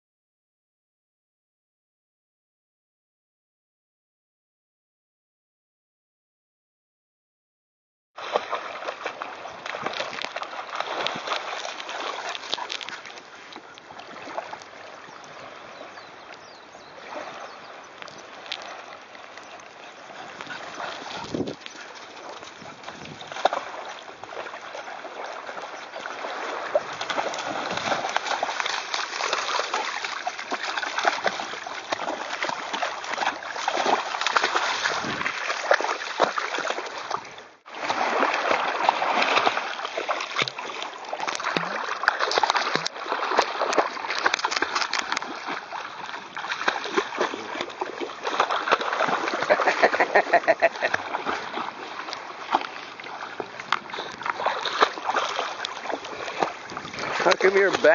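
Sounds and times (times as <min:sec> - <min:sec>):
dog splashing through water: 0:08.2 - 0:14.8, 0:18.2 - 0:57.9.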